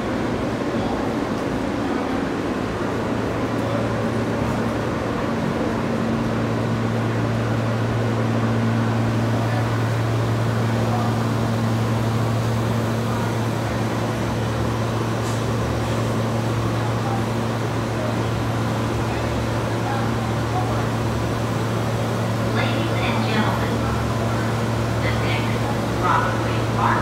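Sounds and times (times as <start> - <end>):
subway train humming: 0.0 - 27.0.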